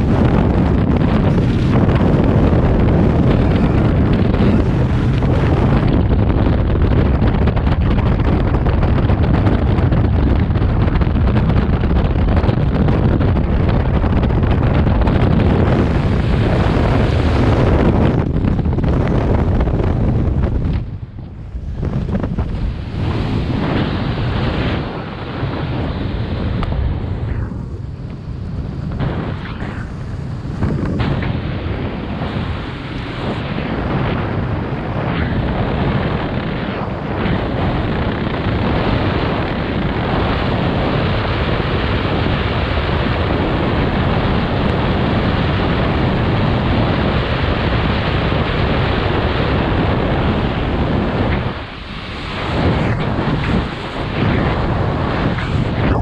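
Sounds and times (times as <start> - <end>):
wind rushing over microphone: 0.0 - 56.0.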